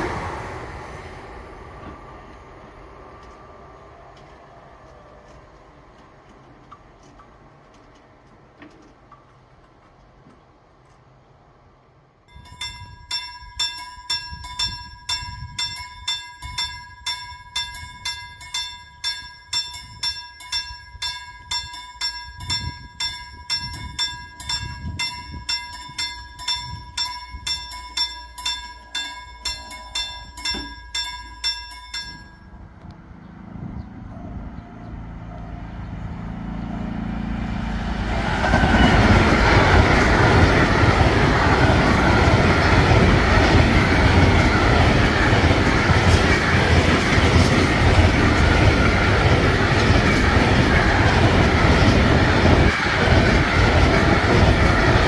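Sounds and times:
wheel-on-rail noise: 0.0 - 11.2, 22.2 - 55.0
freight train passing: 0.0 - 55.0
level crossing bell ringing: 12.3 - 32.7.

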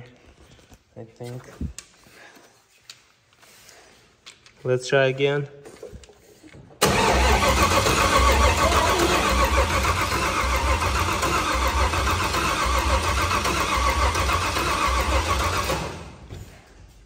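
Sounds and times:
starter motor cranking engine: 6.8 - 16.3.

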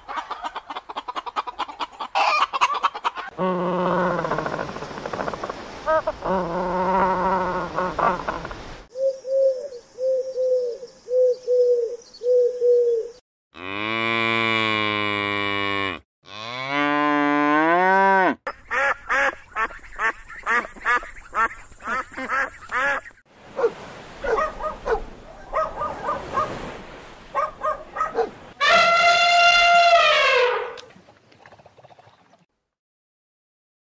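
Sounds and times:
dove cooing: 7.0 - 13.2
cow mooing: 13.6 - 18.4
dog barking: 23.6 - 26.6, 27.3 - 28.4
penguin wavering cry: 28.6 - 30.8.

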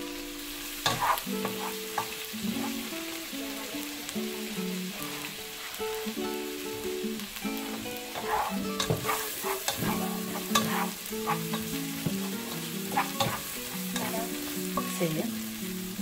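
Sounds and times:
onion sizzling in butter: 0.0 - 16.0
spatula scraping pan bottom: 0.9 - 2.8, 7.7 - 15.0.

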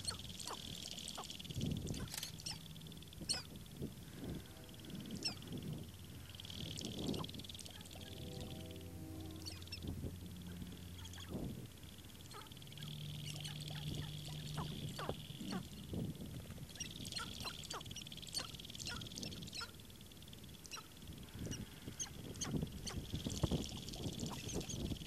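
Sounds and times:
grouse clucking and cackling: 0.0 - 4.4, 12.2 - 16.0, 16.6 - 19.9
high steady buzzing: 0.0 - 25.0
low hum: 0.0 - 25.0.

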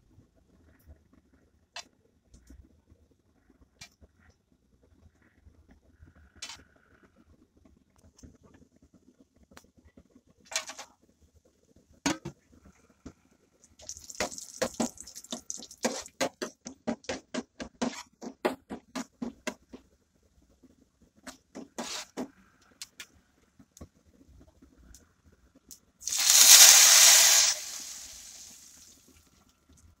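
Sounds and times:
nuts sizzling in hot oil: 13.8 - 16.3, 26.0 - 28.9.

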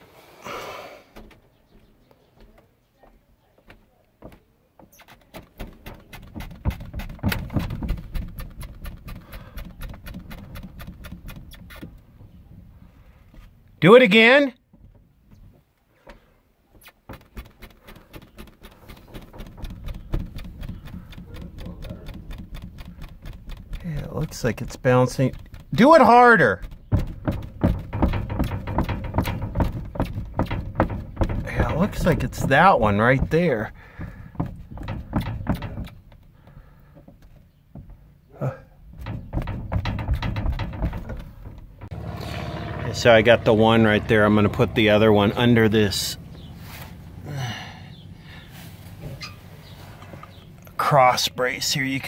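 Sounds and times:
wooden floor knocking and clicking: 1.2 - 12.4, 17.0 - 38.0, 38.9 - 42.0
low thumps of bouncing: 3.7 - 13.8, 14.6 - 49.3.

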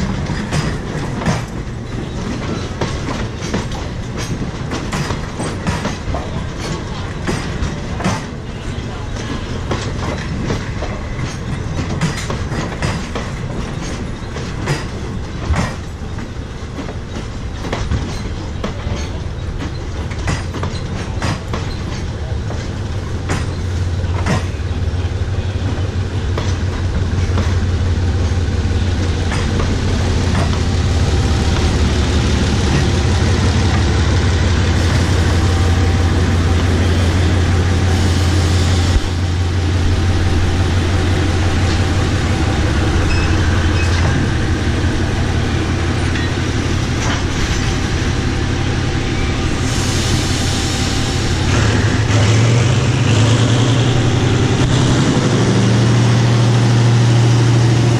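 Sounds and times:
wheels clicking over rail joints: 0.0 - 35.3
diesel locomotive engine drone: 0.0 - 57.9.

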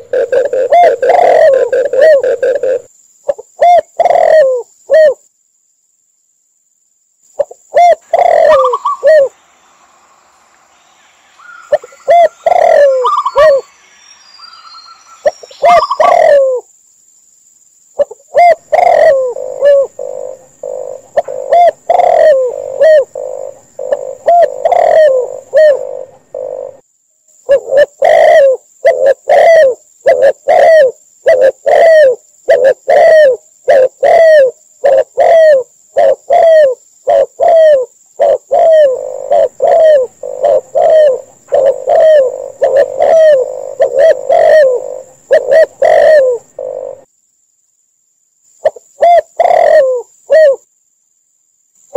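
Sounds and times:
doves cooing: 0.0 - 5.2, 7.4 - 9.4, 11.6 - 13.7, 15.3 - 16.6, 18.0 - 26.8, 27.5 - 47.1, 48.6 - 50.6.

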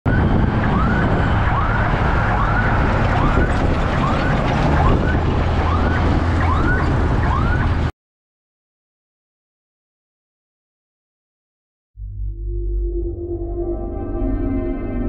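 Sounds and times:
low vehicle rumble: 0.1 - 7.9
rising siren whoops: 0.1 - 7.9.

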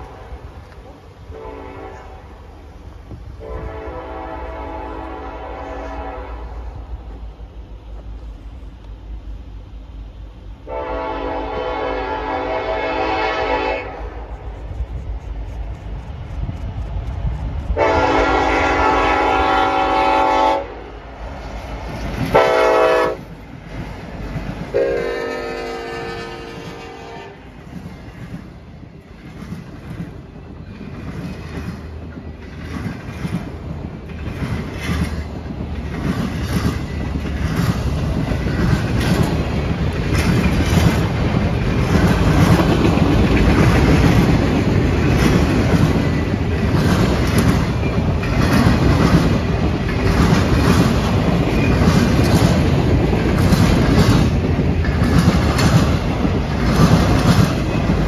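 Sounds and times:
train wheels clacking over rail joints: 21.3 - 58.0.

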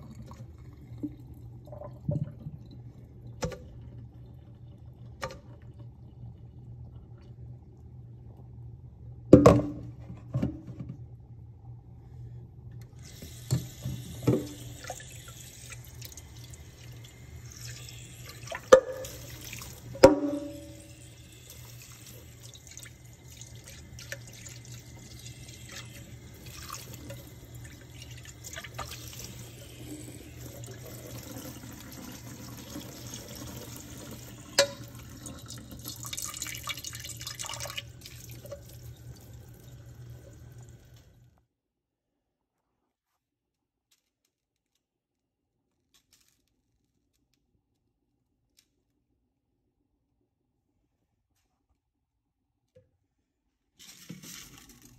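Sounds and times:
tap water running into sink: 13.0 - 41.2.

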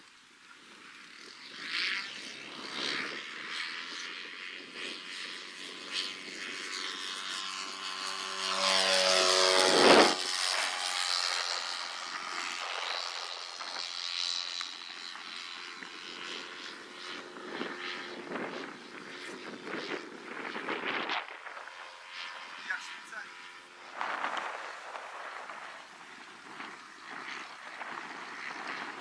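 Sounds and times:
model plane propeller engine: 0.0 - 29.0.

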